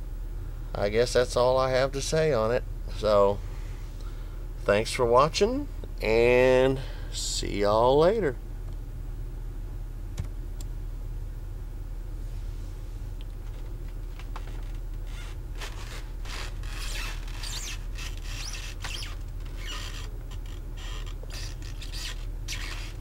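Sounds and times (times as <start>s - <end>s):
low hum: 0.0s - 23.0s
scraping and rubbing noises: 13.4s - 23.0s.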